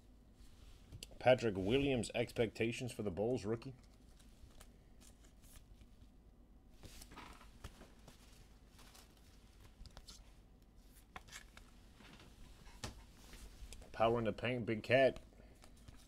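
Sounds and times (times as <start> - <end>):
trading cards rustling and clicking: 10.9 - 13.0, 15.1 - 16.0.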